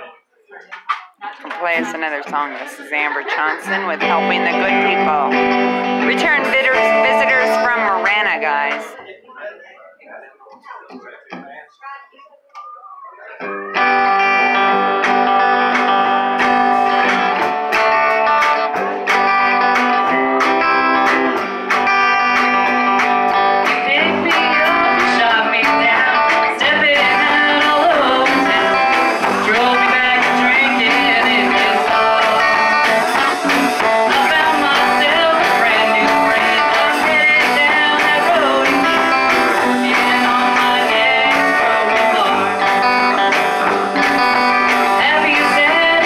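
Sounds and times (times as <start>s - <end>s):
live blues band playing: 0.8s - 9.0s, 13.4s - 46.0s
woman singing: 1.2s - 5.4s, 6.0s - 9.0s, 23.8s - 43.2s, 44.1s - 46.0s.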